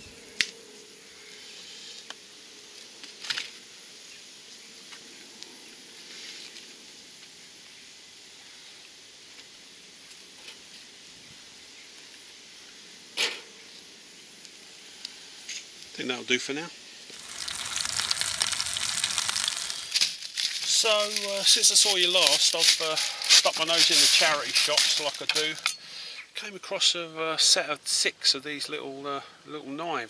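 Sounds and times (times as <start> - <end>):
stove burner hissing: 17.0 - 26.2.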